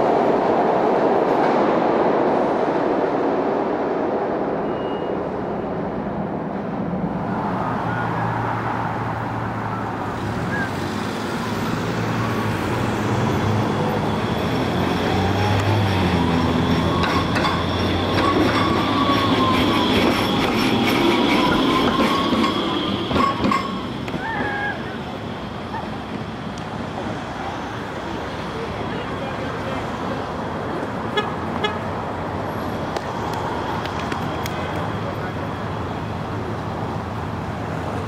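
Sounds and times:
streetcar whine and hum: 0.0 - 38.0
subway train rumbling: 0.0 - 38.0
wheels clicking over rail joints: 15.1 - 24.6.

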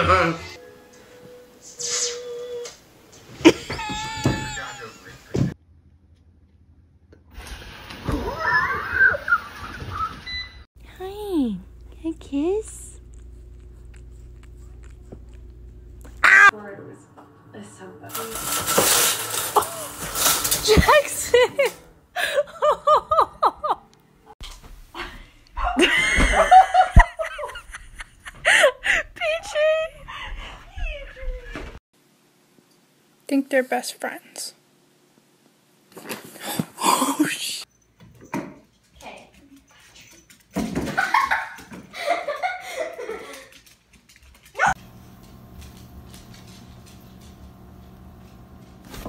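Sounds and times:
girl laughing and squealing: 3.4 - 5.0, 8.2 - 10.0, 25.6 - 31.7
people laughing: 3.4 - 5.4, 21.2 - 23.8, 25.7 - 29.2, 41.0 - 43.5
people talking: 4.2 - 5.6, 10.8 - 13.0, 16.5 - 18.6, 20.6 - 21.7, 29.0 - 30.0, 33.3 - 34.6
steady low hum: 10.8 - 18.4.

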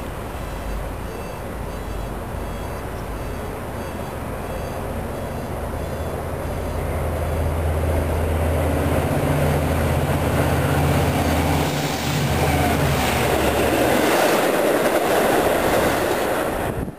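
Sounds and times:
diesel engine drone: 0.0 - 14.7
train wheels rumbling on rails: 4.9 - 16.9.

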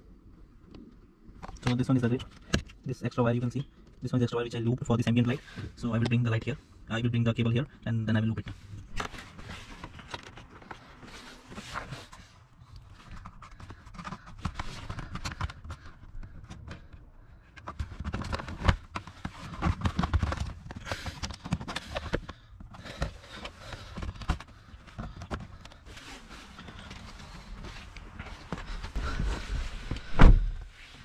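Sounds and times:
rustling behind plastic trim: 8.5 - 31.0
dull thuds: 28.6 - 30.7.

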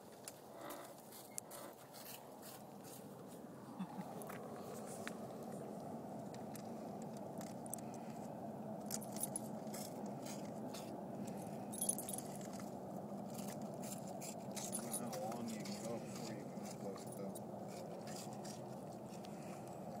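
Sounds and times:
dog collar tags jingling: 8.9 - 9.9, 11.7 - 12.6, 14.6 - 15.8, 16.8 - 17.4.

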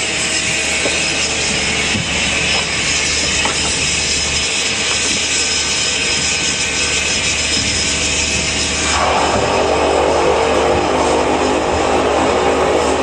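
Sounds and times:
turboprop engine and propeller rush: 0.0 - 13.0.

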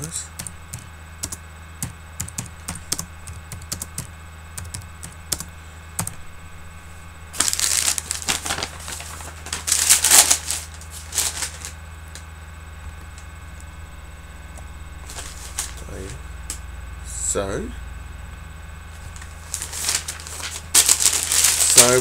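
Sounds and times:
loud rustling bursts: 7.4 - 11.7, 19.2 - 22.0.

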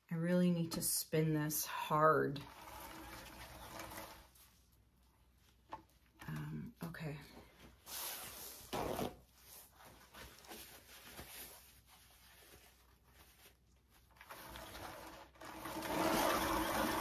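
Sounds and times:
paint spinner whirring hum: 2.3 - 4.4
faint handling and rustling: 2.3 - 15.5.

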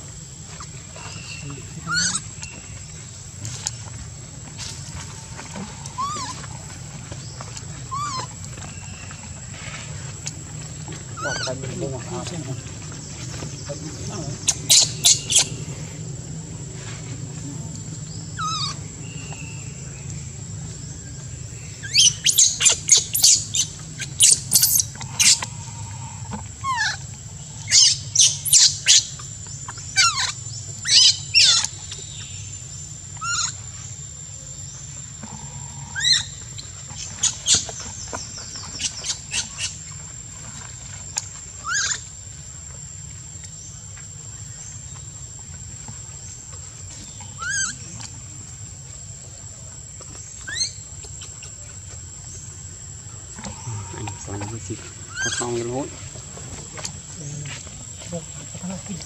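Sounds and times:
baby monkey squealing: 1.9 - 2.2, 6.0 - 6.4, 7.9 - 8.3, 11.2 - 11.6, 14.4 - 15.6, 18.4 - 18.8, 21.8 - 25.5, 26.6 - 27.0, 27.7 - 29.2, 30.0 - 31.7, 33.2 - 33.6, 35.9 - 36.3, 41.6 - 42.0, 47.4 - 47.8, 50.4 - 50.8, 55.1 - 55.4.

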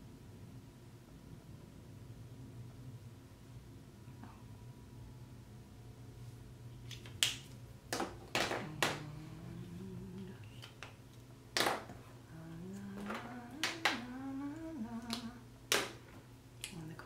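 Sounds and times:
person humming: 8.5 - 10.7, 12.3 - 15.5.

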